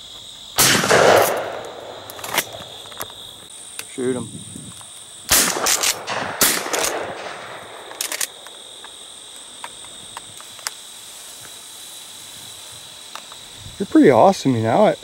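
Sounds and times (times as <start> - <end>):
insects trilling: 0.0 - 15.0
shotgun shots with echo: 0.6 - 2.7, 5.3 - 8.0
quick clicks: 5.3 - 8.6.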